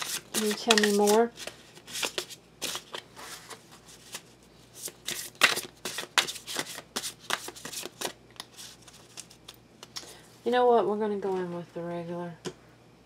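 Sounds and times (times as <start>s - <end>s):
cards being shuffled by hand: 0.0s - 10.0s.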